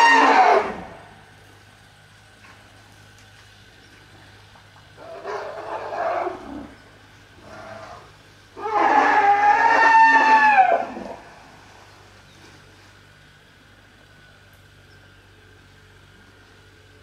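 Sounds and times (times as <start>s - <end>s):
elephant trumpeting: 0.0s - 1.1s, 5.0s - 11.5s
elephants calling: 0.0s - 1.4s, 2.0s - 13.5s.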